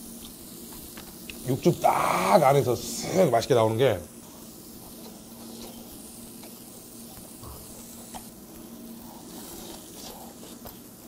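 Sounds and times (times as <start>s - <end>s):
steady hiss: 0.0s - 11.0s
chewing and slurping: 8.9s - 10.9s.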